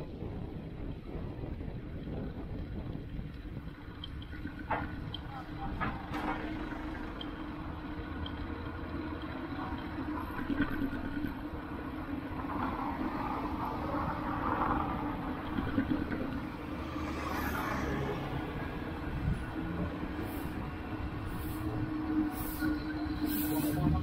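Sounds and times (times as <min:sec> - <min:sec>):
city traffic rumble: 0:00.0 - 0:24.0
vehicle passing: 0:12.6 - 0:21.7.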